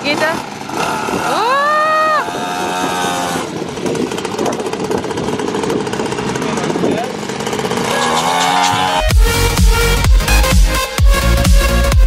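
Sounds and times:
small petrol engine running: 0.0 - 9.6.

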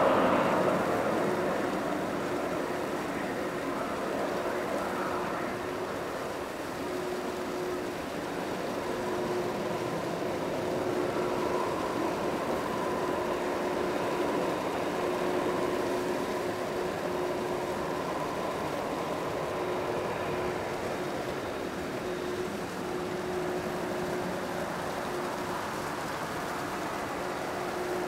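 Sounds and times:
jet engines idling: 0.0 - 28.0.

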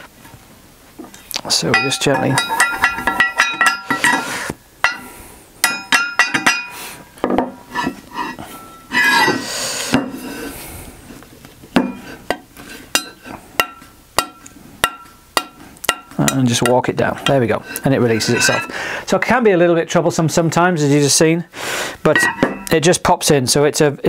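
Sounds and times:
metallic clinks and taps: 1.7 - 4.2, 4.8 - 7.5
scraping clatter: 18.0 - 18.8.

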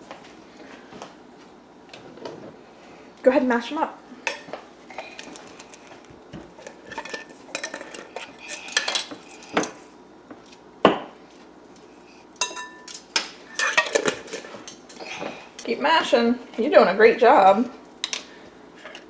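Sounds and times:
glass and metal clinks: 12.4 - 13.0.

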